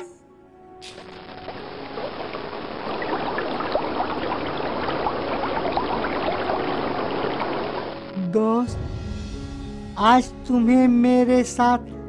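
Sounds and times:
running water bubbling: 0.9 - 8.2.

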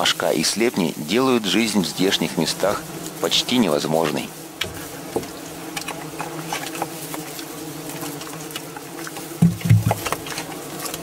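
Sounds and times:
flies buzzing: 0.0 - 11.0
small ticks and taps: 4.0 - 11.0
low thud: 9.4 - 10.0.

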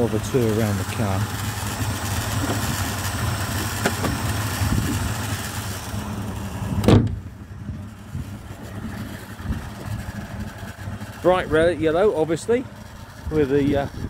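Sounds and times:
car engine idling: 0.0 - 14.0
car bonnet slammed shut: 3.8 - 4.2, 6.7 - 7.3.

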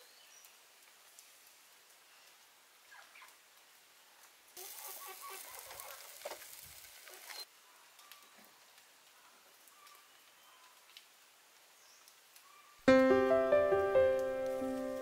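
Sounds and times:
meat sizzling on a grill: 4.6 - 7.5, 14.1 - 15.0.

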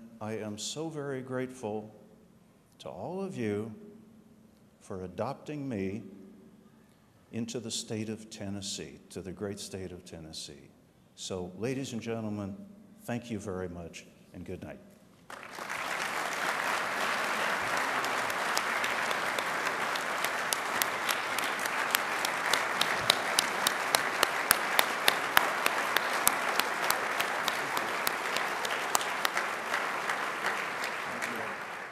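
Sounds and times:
close sharp claps: 15.3 - 31.9
large audience applauding: 15.3 - 31.9.

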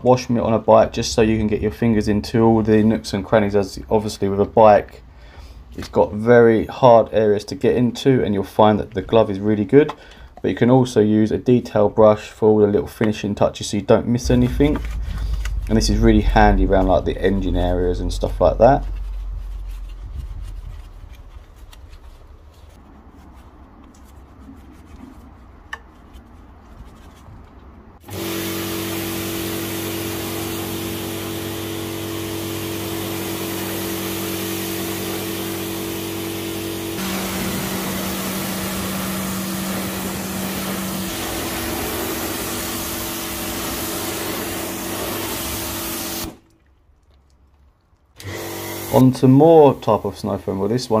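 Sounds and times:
pressure washer motor hum: 28.0 - 46.4, 48.2 - 49.2
water jet hissing: 32.2 - 46.4.

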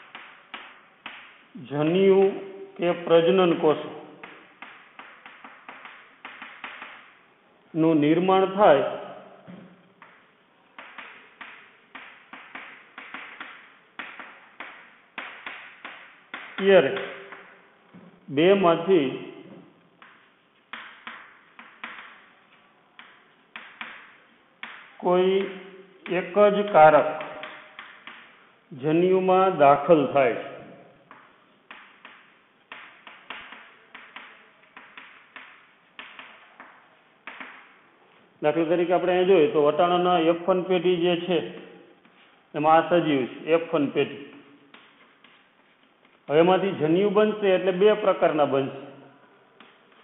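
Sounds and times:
chalk tapping and scratching: 0.0 - 1.4, 4.2 - 7.2, 10.0 - 17.5, 20.0 - 28.5, 31.1 - 37.7, 42.0 - 42.4, 44.7 - 46.3.

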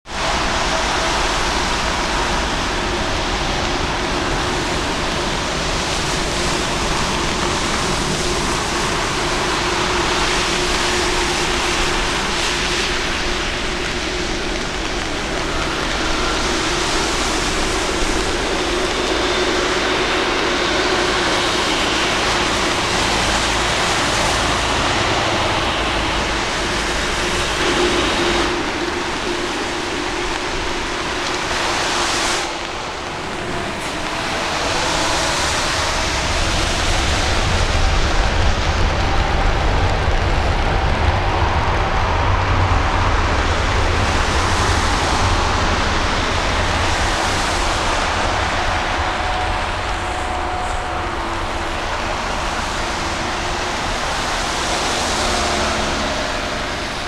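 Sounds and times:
jet engines rushing: 0.0 - 57.0.

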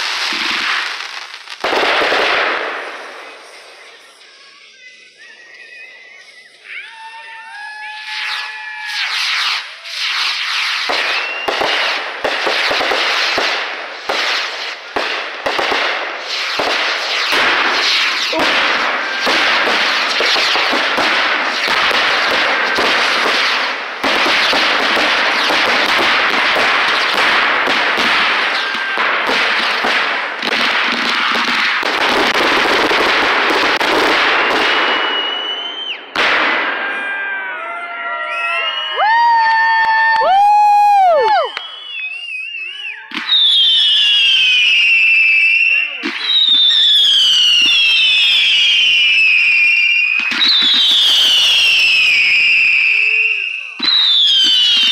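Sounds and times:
fireworks popping and banging: 0.0 - 4.2, 8.0 - 37.4, 38.7 - 54.9
firework whistling: 0.0 - 54.9.

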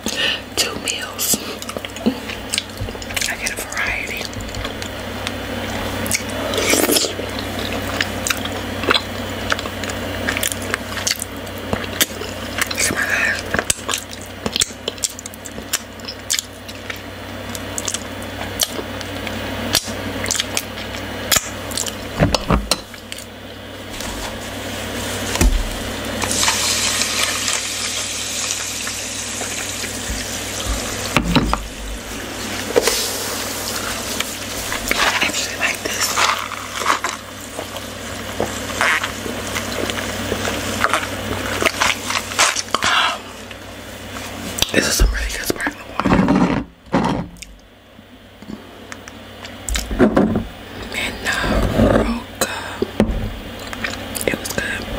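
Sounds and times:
mouth eating sounds: 5.7 - 22.0
person drinking from a cup: 6.1 - 9.7.

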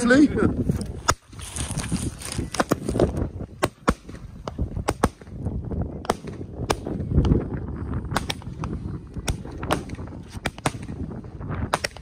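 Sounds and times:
firework shots cracking: 3.5 - 5.4, 6.0 - 7.4, 8.0 - 12.0.

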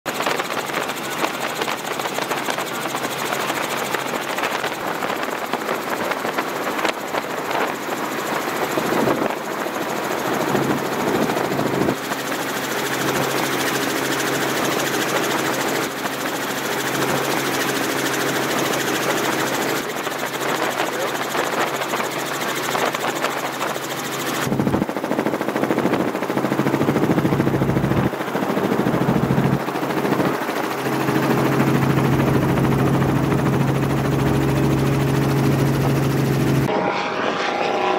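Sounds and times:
engine with rhythmic chatter: 10.0 - 24.9.

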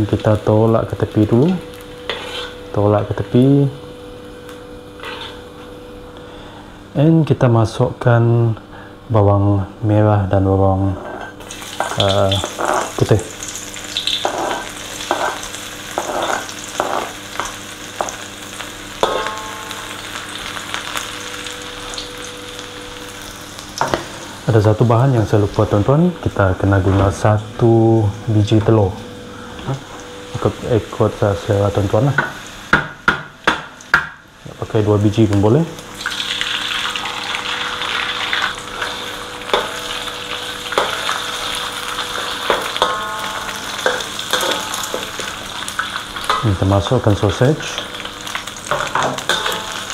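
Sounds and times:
garlic sizzling in hot oil: 0.0 - 5.5, 11.4 - 26.7, 33.8 - 49.9
metal spatula scraping wok: 2.0 - 2.7, 5.0 - 5.4
metal spatula striking wok: 19.0 - 20.3, 39.5 - 46.8, 48.7 - 49.9.

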